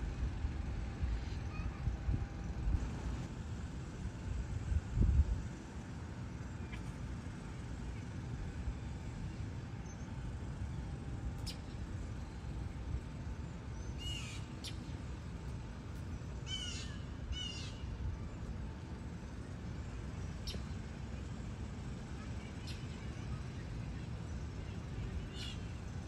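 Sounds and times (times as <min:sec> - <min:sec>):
low background rumble: 0:00.0 - 0:26.0
raspy bird calls: 0:13.8 - 0:15.0, 0:16.4 - 0:17.9, 0:25.3 - 0:25.8.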